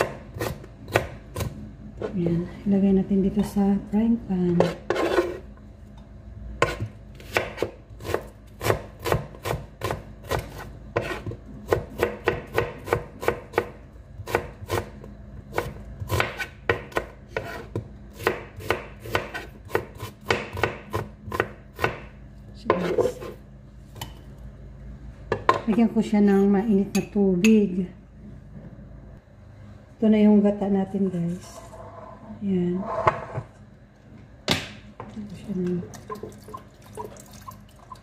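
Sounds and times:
knife chopping on cutting board: 4.6s - 5.4s, 6.6s - 14.9s, 15.5s - 23.4s.

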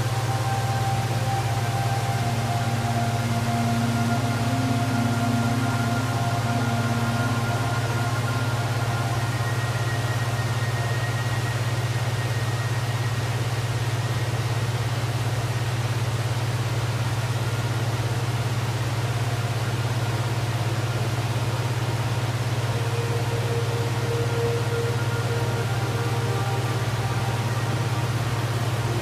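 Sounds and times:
waterfall rushing: 0.0s - 11.0s, 22.0s - 29.0s.

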